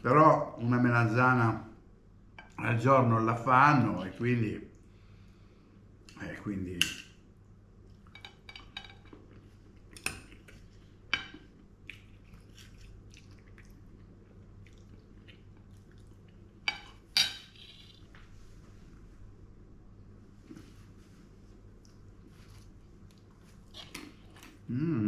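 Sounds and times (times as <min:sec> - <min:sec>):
quiet chewing: 0:07.4 - 0:16.6, 0:21.6 - 0:24.7
cutlery clinking on a plate: 0:08.1 - 0:09.2.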